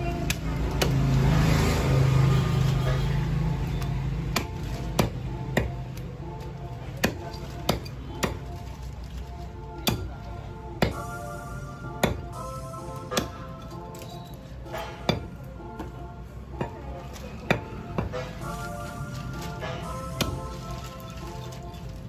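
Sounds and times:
background music: 0.0 - 22.0
cleaver chopping meat and bone: 0.1 - 1.2, 4.2 - 6.2, 6.8 - 8.6, 9.8 - 10.2, 10.8 - 11.1, 12.0 - 12.4, 13.1 - 13.4, 14.7 - 16.0, 16.6 - 18.2, 20.1 - 20.5.

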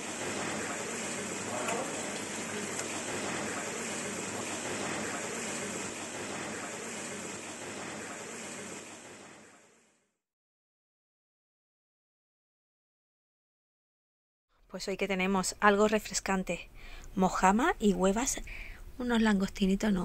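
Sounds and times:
water jet splashing into tank: 0.0 - 9.8.

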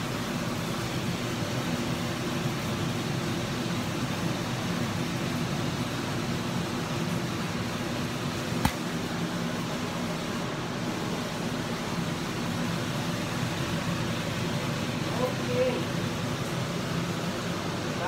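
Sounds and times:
sharp tap: 8.6 - 8.9.

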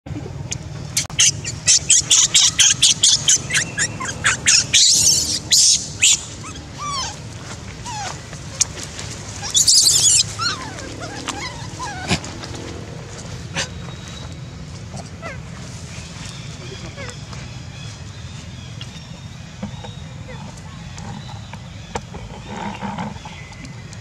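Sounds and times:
baby monkey screaming: 1.0 - 12.4.

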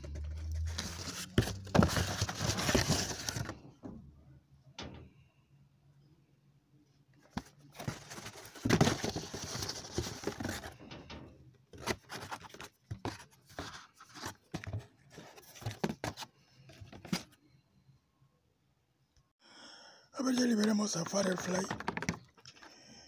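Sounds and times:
cardboard scraping and rustling: 0.0 - 3.6, 7.2 - 10.9, 11.7 - 17.4.

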